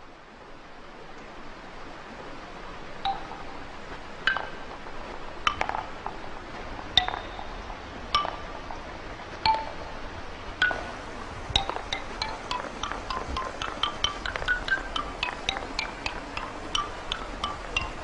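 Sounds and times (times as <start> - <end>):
wooden ball knocking tuned wood: 3.0 - 3.6, 4.2 - 18.0.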